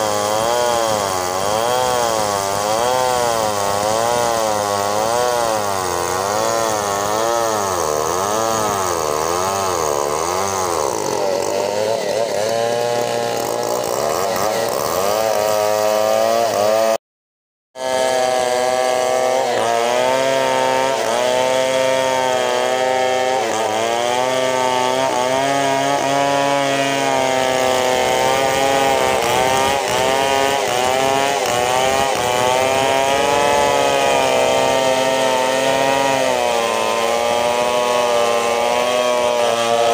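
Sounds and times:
chainsaw cutting log: 0.0 - 17.0, 17.8 - 39.9.

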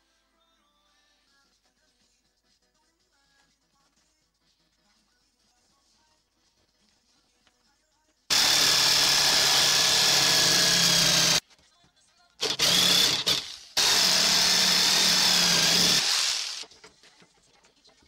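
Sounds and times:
jigsaw cutting wood: 8.3 - 11.4, 12.4 - 16.7.

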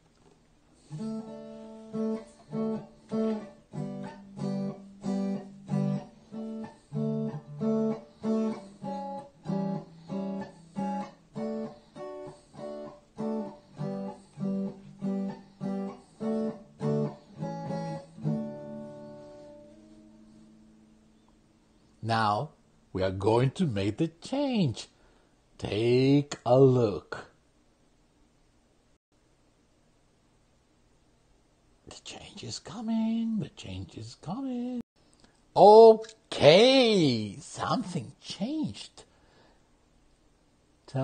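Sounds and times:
acoustic guitar strumming: 0.8 - 20.5.

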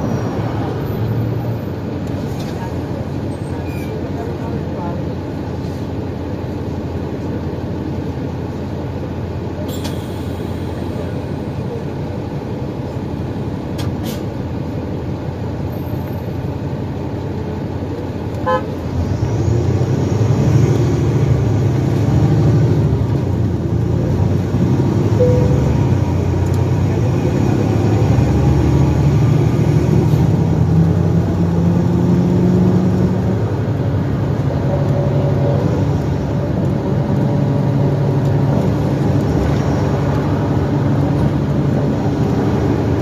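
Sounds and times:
bus engine and road noise: 0.0 - 43.0
short beep: 25.2 - 26.1.

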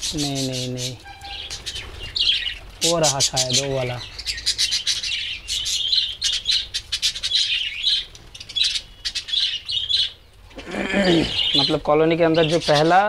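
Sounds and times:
budgerigars chirping: 0.0 - 13.0.

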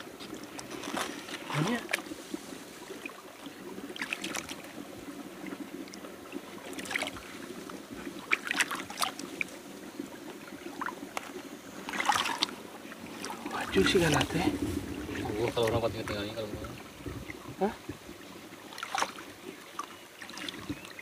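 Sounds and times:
flowing water: 0.0 - 21.0
hands splashing in water: 11.9 - 12.5.

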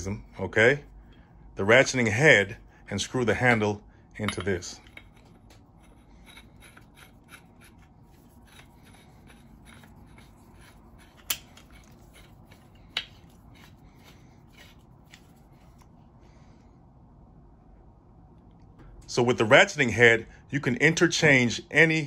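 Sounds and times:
threads ticking and rubbing: 4.4 - 15.9.

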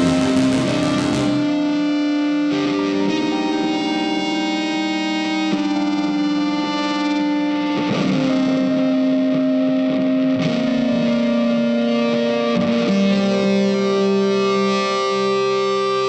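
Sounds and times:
guitar chords with effects: 0.0 - 16.0.

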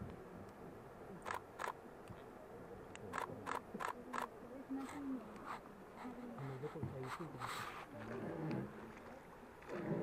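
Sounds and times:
low steady background noise: 0.0 - 10.0
camera clicks: 1.2 - 1.8, 3.0 - 4.3.

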